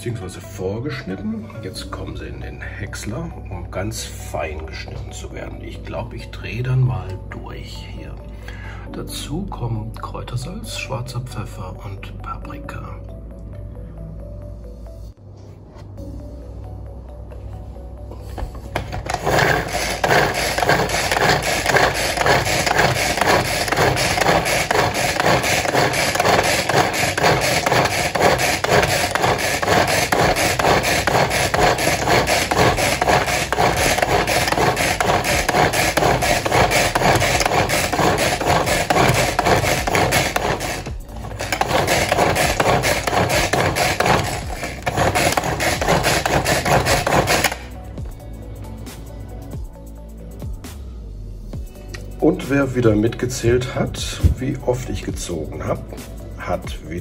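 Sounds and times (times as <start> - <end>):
pull-cord chopper churning: 18.8 - 47.7.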